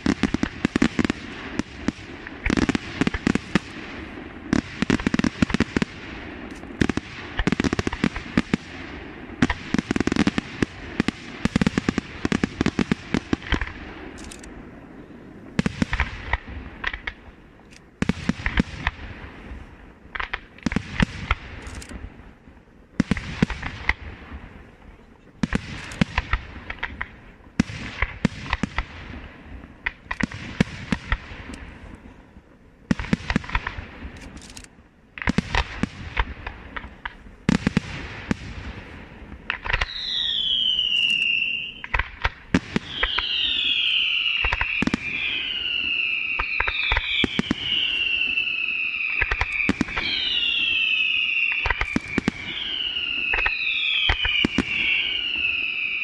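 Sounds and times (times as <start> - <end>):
firework bangs: 0.0 - 17.4, 18.0 - 32.0, 32.8 - 34.4, 35.1 - 56.0
falling firework whistles: 37.4 - 56.0
crackling shell bursts: 39.5 - 48.4.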